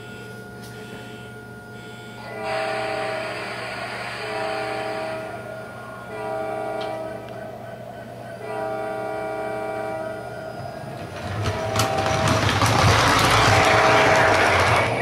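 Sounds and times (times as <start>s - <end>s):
model train horn blast: 0.0s - 3.6s, 4.2s - 7.4s, 8.4s - 10.6s, 11.3s - 15.0s
model train wheels rumbling: 8.4s - 15.0s.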